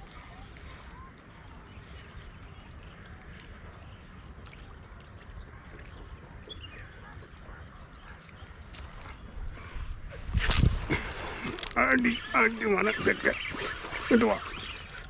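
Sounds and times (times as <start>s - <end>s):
insects trilling: 0.0s - 15.0s.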